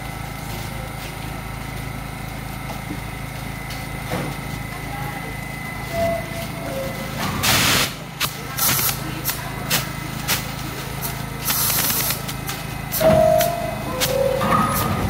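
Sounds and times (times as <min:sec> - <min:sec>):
subway train humming: 0:00.0 - 0:15.0.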